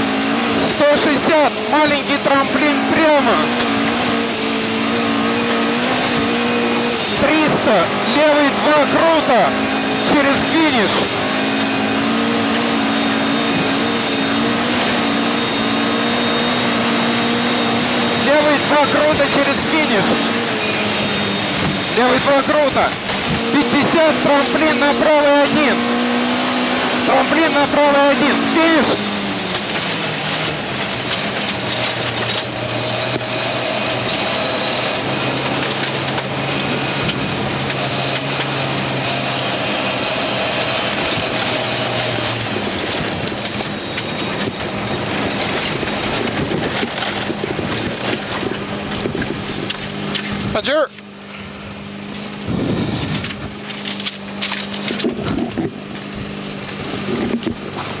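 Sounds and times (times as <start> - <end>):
tyres rushing on gravel: 0.0 - 51.2
car engine running: 0.0 - 58.0.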